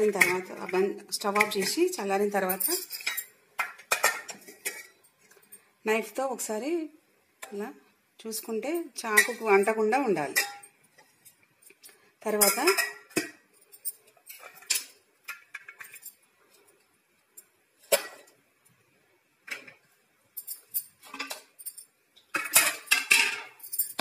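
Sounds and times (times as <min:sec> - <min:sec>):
steel kitchenware clinking: 0:00.0 - 0:05.0, 0:09.0 - 0:16.2, 0:20.4 - 0:24.0.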